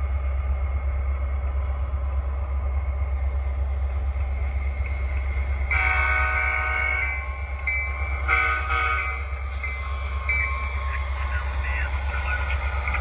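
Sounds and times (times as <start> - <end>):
steady low hum: 0.0 - 13.0
model train horn: 5.7 - 7.2, 8.3 - 9.3.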